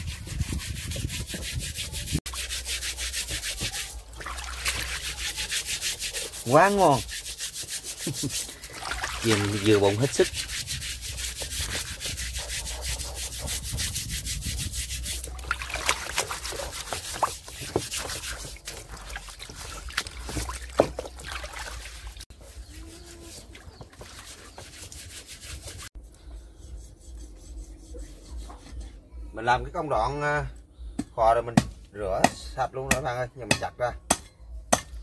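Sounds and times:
steel wool scrubbing skin in water: 0.0 - 26.0.

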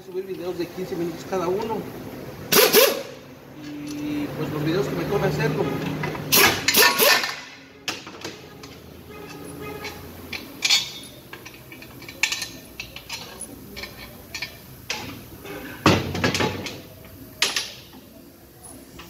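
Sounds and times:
metal tools clinking on metal: 8.6 - 15.1.

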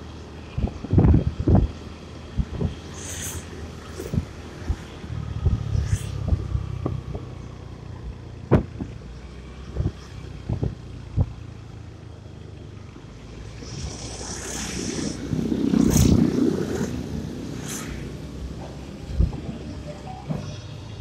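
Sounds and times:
rush of noise: 0.0 - 6.8, 12.8 - 21.0
scooter engine hum: 0.0 - 21.0.

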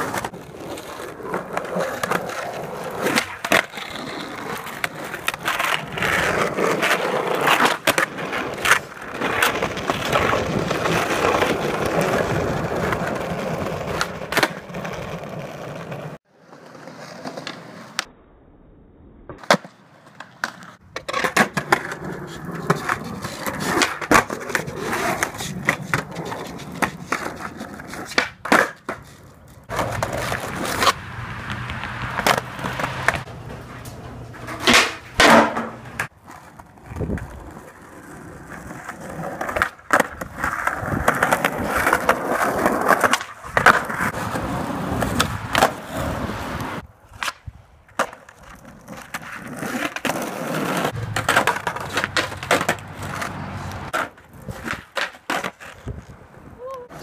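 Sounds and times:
skateboard wheels rumbling on concrete: 0.0 - 18.1, 19.3 - 57.0
skateboards landing: 0.0 - 18.1, 19.3 - 57.0
skateboard tail pops: 19.3 - 36.1, 44.8 - 56.2.

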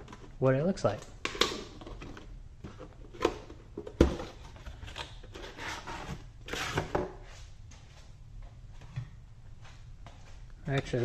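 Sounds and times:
cardboard scraping and rustling: 1.9 - 7.2.

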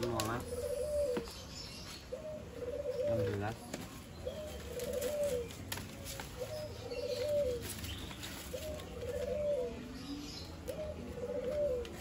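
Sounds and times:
bird cooing: 0.0 - 12.0.

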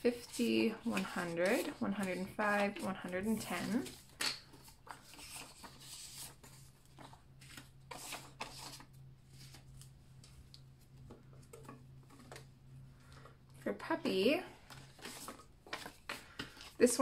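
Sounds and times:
paper bills rustling: 0.0 - 10.4, 14.6 - 17.0.

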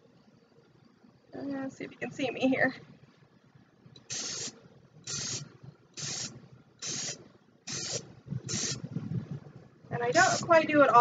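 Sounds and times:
spray paint can hissing: 4.0 - 8.9, 10.1 - 10.5.

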